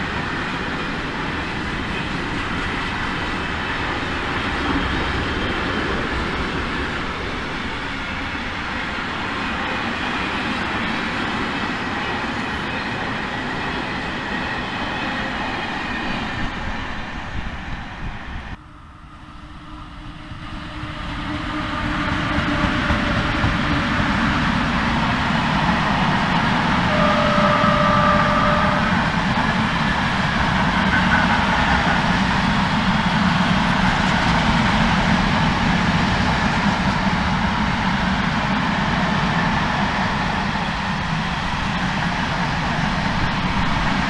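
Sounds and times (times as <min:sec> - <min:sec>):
train wheels running on rails: 0:00.0 - 0:18.6, 0:19.2 - 0:44.0
electric locomotive passing: 0:00.0 - 0:44.0.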